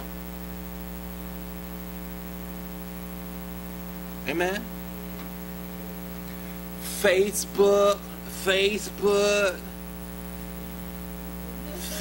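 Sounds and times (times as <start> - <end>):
electrical mains hum: 0.0 - 12.0
man calling out sing-song: 4.3 - 4.7, 6.8 - 9.8.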